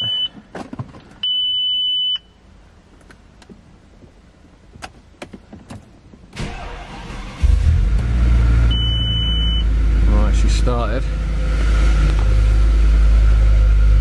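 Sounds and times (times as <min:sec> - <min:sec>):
dashboard warning chime: 0:08.7 - 0:09.6.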